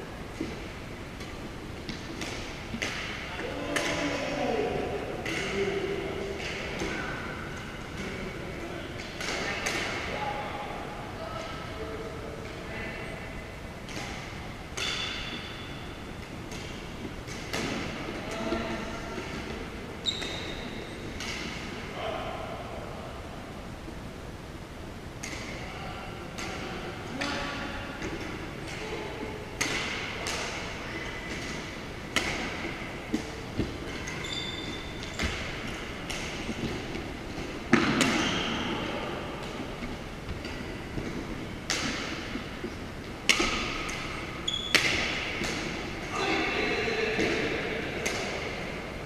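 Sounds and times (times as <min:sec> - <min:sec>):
rackets striking shuttlecock: 0:01.2 - 0:04.0, 0:13.8 - 0:15.8, 0:16.5 - 0:18.0, 0:29.5 - 0:38.6, 0:40.4 - 0:42.5, 0:43.2 - 0:46.0.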